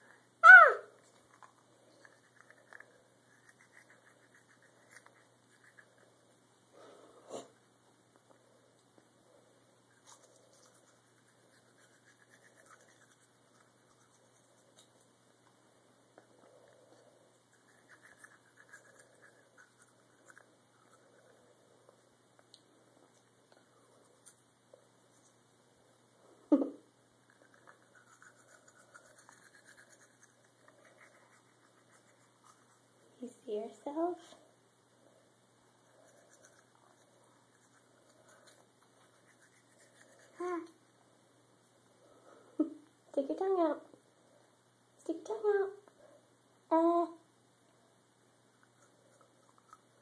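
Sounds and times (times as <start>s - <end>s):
toothbrush scrubbing teeth: 1.1s - 6.2s, 9.9s - 15.0s, 17.4s - 21.5s, 27.2s - 32.9s, 35.8s - 40.9s, 48.6s - 50.0s.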